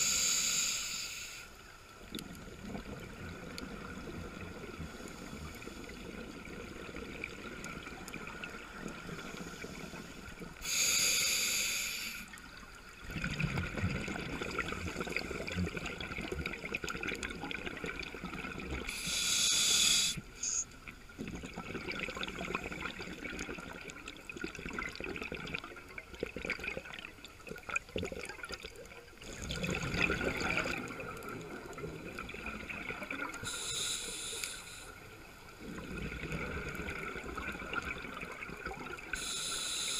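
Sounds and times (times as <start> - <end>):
regulator hissing inhalations: 0.0 - 1.5, 9.3 - 12.3, 18.9 - 20.6, 33.4 - 35.0, 39.1 - 39.9
steady underwater hiss: 0.0 - 25.0, 25.6 - 39.9
gurgling exhaled bubbles: 2.1 - 10.6, 12.9 - 18.9, 21.1 - 33.6, 35.4 - 39.3.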